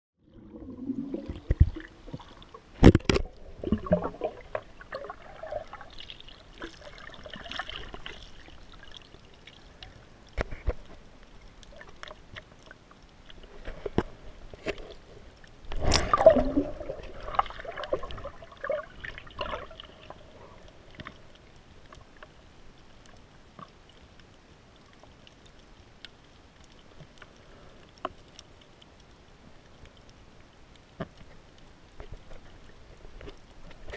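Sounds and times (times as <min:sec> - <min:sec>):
water splashing: 0:00.2 - 0:22.3
muffled water sloshing: 0:00.2 - 0:22.8
faint hiss: 0:00.7 - 0:33.9.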